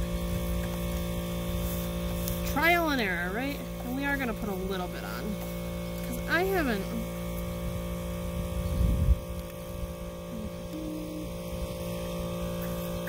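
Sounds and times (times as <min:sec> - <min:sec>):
compressor humming: 0:00.0 - 0:13.0
wind rumble on microphone: 0:07.5 - 0:13.0.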